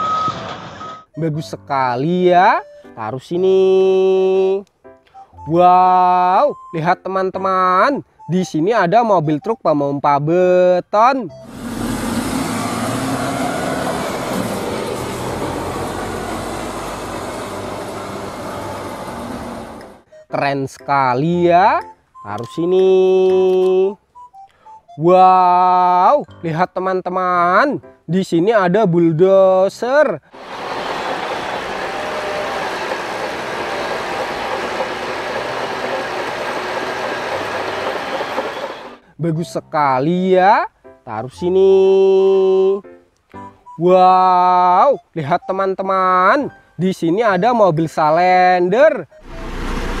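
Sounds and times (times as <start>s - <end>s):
heavy diesel engine running: 11.4s - 20.0s, 30.4s - 39.0s, 49.2s - 50.0s
outdoor street noise: 11.4s - 20.1s, 30.3s - 39.2s, 49.1s - 50.0s
steel tracks clattering: 12.5s - 20.0s, 30.4s - 39.0s.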